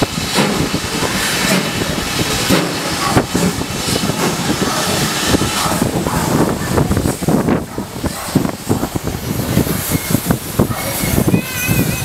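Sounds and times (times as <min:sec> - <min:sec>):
steam locomotive hissing: 0:00.0 - 0:12.0
locomotive knocks: 0:00.2 - 0:06.1.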